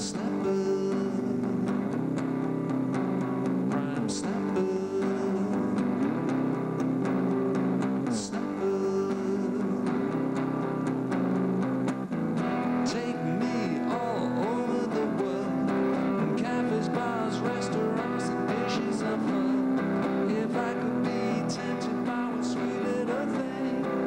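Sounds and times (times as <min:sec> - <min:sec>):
electric guitar music: 0:00.0 - 0:24.0.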